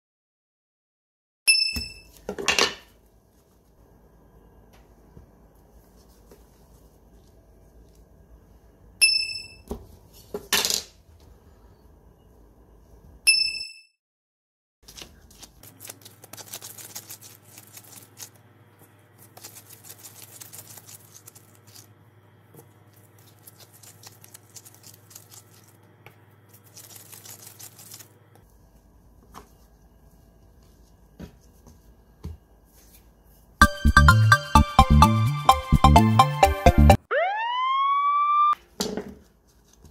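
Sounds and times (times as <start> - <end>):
hands rolling dough: 2.0 - 8.8, 14.8 - 33.6, 39.2 - 39.9.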